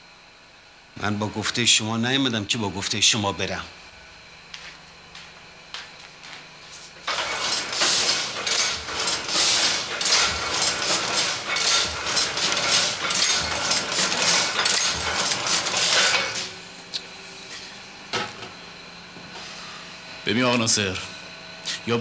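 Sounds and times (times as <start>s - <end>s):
printing press clattering: 7.0s - 16.6s.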